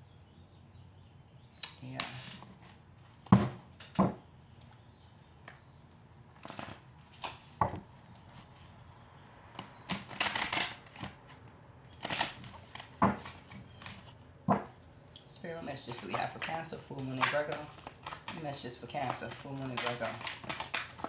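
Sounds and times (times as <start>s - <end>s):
cards shuffling: 6.4s - 8.8s, 9.8s - 21.0s
cards slapping and flicking: 15.8s - 21.0s.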